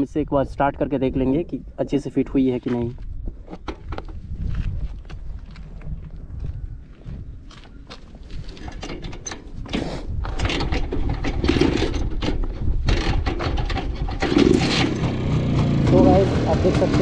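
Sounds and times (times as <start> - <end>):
motorcycle being kick-started: 8.6 - 17.0
motorcycle engine running: 12.8 - 17.0.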